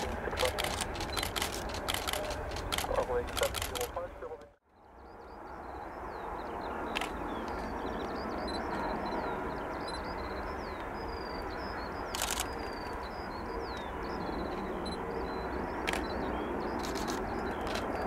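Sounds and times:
sharp clicks: 0:00.0 - 0:04.0
distant jet airliner rumble: 0:00.0 - 0:18.0
small birds chirping: 0:04.7 - 0:18.0.

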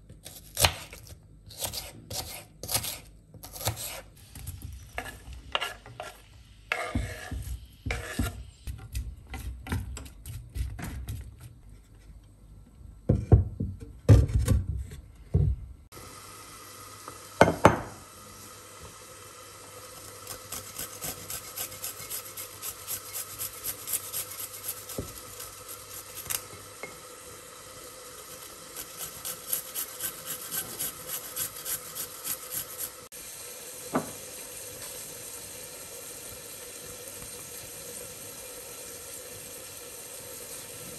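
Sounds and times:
knife chopping on cutting board: 0:00.2 - 0:04.0
garlic grating strokes: 0:01.5 - 0:04.2, 0:05.0 - 0:09.6, 0:20.1 - 0:26.4, 0:28.3 - 0:33.1.

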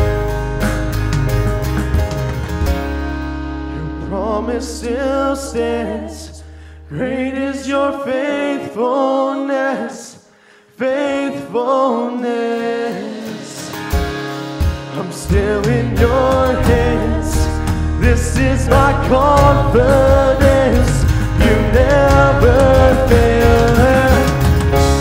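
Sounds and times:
held bass notes: 0:00.0 - 0:08.6, 0:13.9 - 0:25.0
guitar: 0:00.0 - 0:09.0, 0:10.8 - 0:25.0
voices singing a slow song: 0:03.8 - 0:14.0, 0:14.8 - 0:24.7.

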